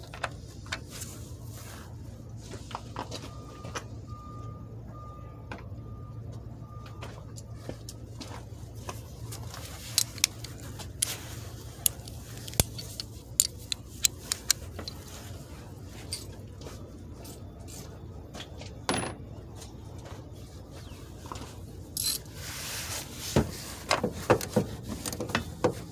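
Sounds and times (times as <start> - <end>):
metal hand tools clinking: 11.8 - 15.0, 22.0 - 22.3
metal scrape: 22.0 - 23.8.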